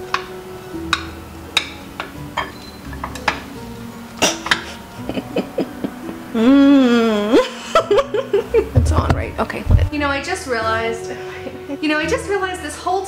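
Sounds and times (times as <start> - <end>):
background music: 0.0 - 13.0
person humming: 4.2 - 8.0.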